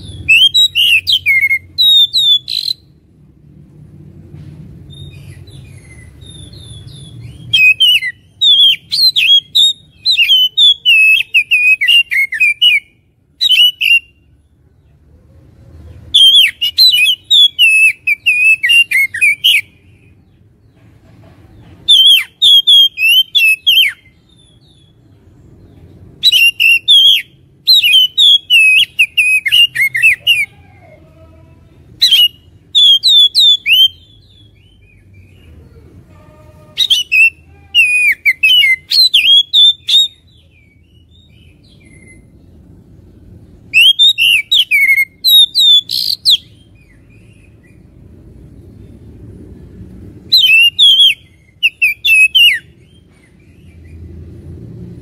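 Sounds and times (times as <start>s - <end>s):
magpie-robin singing: 0.0s - 3.0s, 4.9s - 14.3s, 16.1s - 20.4s, 21.8s - 30.6s, 31.9s - 35.6s, 36.4s - 42.6s, 43.6s - 48.0s, 50.2s - 54.0s
faint low rumble: 0.0s - 10.9s, 40.1s - 45.6s, 46.2s - 50.5s.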